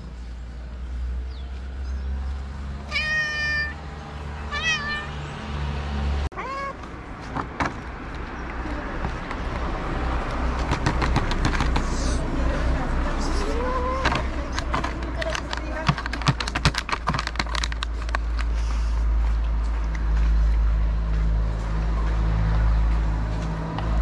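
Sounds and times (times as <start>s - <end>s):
cat meowing: 2.9s - 3.8s, 4.5s - 5.2s, 6.3s - 6.8s.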